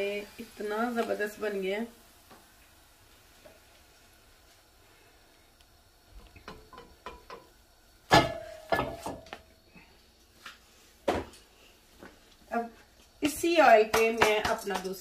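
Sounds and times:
frying pan clattering on stove grate: 0:06.2 - 0:09.4, 0:13.8 - 0:15.0.

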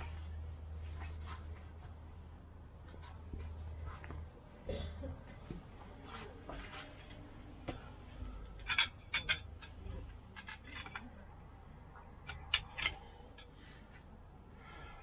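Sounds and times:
metal poles clinking: 0:06.6 - 0:14.0.

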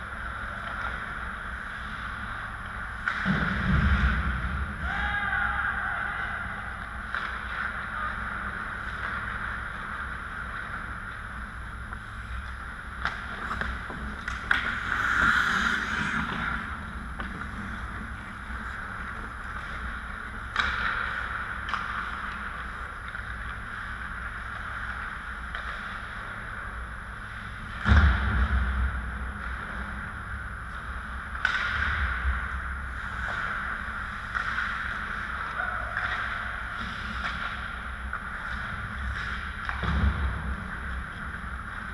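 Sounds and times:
hockey sticks and puck clacking: 0:00.0 - 0:03.8, 0:06.8 - 0:26.6, 0:31.0 - 0:41.9
low hum: 0:00.0 - 0:41.9
skates scraping to a stop: 0:12.1 - 0:26.5
skates hissing on ice: 0:14.6 - 0:16.8.

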